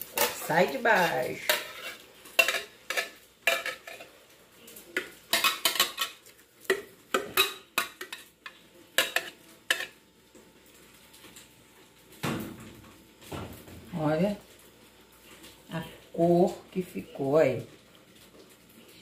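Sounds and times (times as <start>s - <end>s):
metal spoon clinking and scraping: 0.0s - 4.1s, 5.0s - 10.0s.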